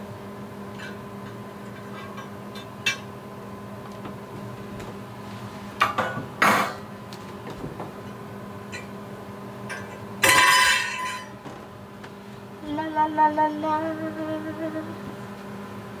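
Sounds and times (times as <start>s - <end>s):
steady low hum: 0.0s - 16.0s
baking pans clinking and knocking: 9.7s - 11.5s.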